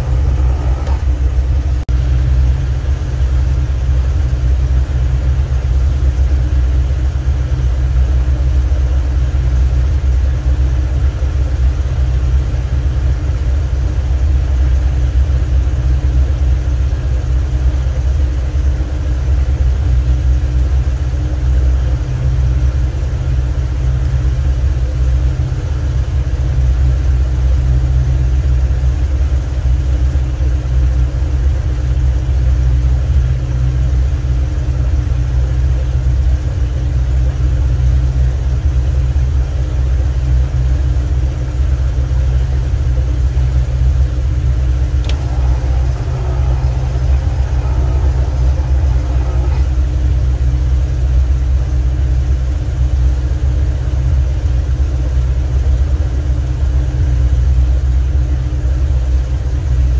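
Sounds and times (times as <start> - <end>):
boat engine droning: 0.0 - 4.6, 44.8 - 52.0.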